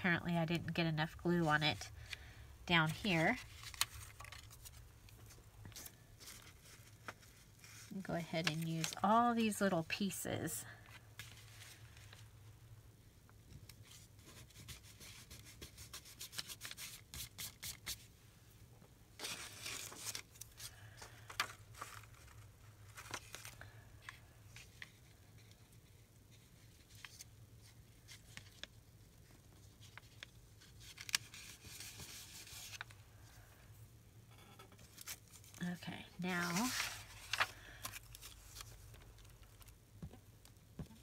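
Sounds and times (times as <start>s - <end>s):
paper rustling: 2.9s - 9.7s, 19.2s - 33.0s, 36.3s - 39.8s.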